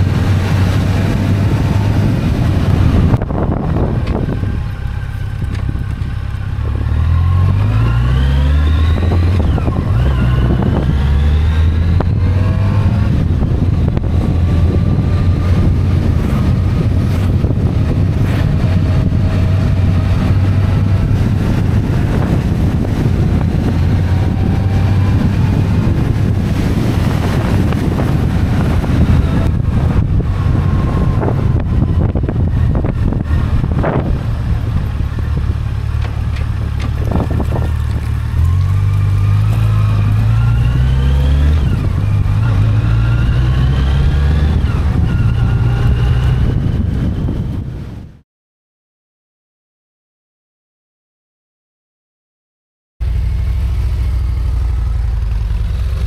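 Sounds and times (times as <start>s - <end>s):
motorcycle engine running: 0.0s - 7.4s, 12.0s - 40.7s, 53.0s - 56.0s
wind rushing over microphone: 0.0s - 48.2s.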